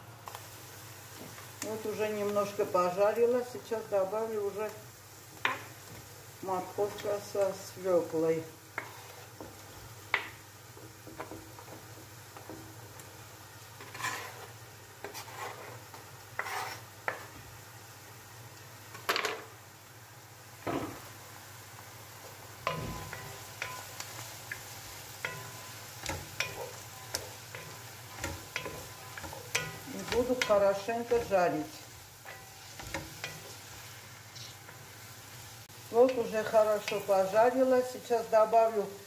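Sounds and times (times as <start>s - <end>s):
frying hiss: 0.0s - 39.0s
wooden spatula stirring: 8.6s - 17.4s, 22.2s - 35.4s.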